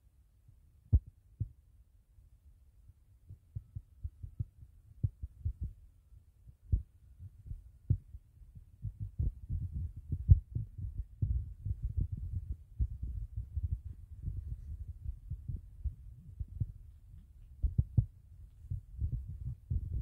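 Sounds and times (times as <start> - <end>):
footfall noise at microphone: 8.9 - 20.0.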